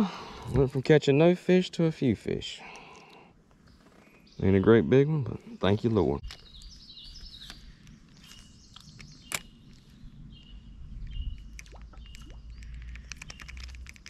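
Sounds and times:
bird chirps: 2.8 - 13.8.

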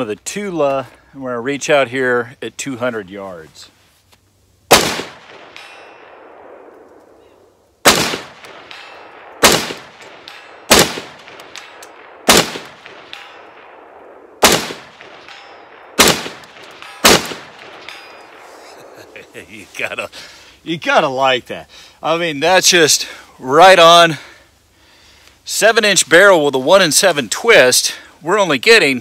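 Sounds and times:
rifle shots with echo: 4.7 - 19.1.

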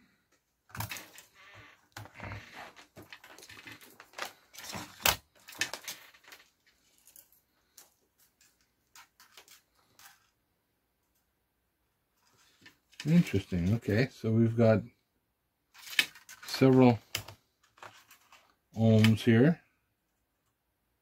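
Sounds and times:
metallic clicks and rustling: 0.7 - 10.3.

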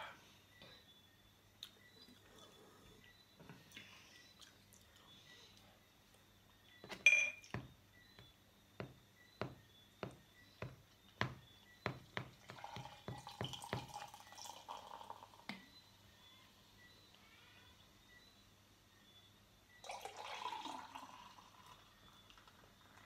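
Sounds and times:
sharp glassy clink: 7.0 - 7.5
beer stream filling glass: 12.5 - 15.5, 19.8 - 23.0.

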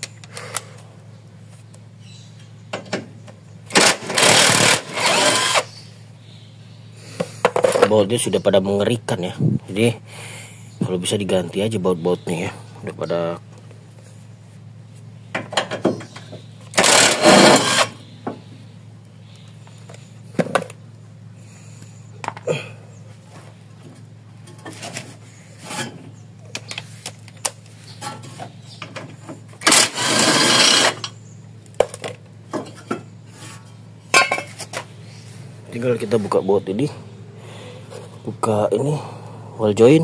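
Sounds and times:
cordless impact wrench running: 3.7 - 5.7, 16.7 - 18.0, 29.6 - 31.1.

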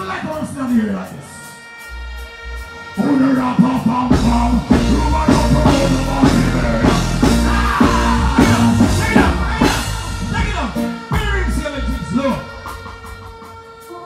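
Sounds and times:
reggae music through sound system: 0.0 - 14.0
heavy bass line: 1.8 - 13.5
man singing: 3.0 - 13.0.

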